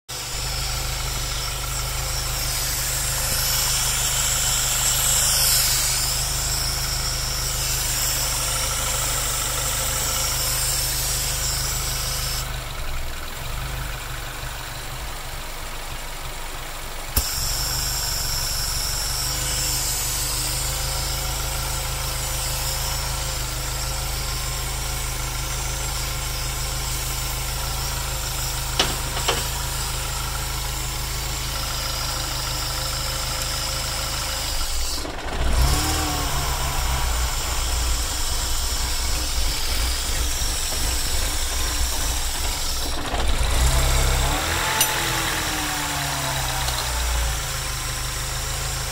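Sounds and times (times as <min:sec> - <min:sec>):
car engine idling roughly: 0:00.1 - 0:48.9
sharp click: 0:28.7 - 0:29.7, 0:44.6 - 0:45.2.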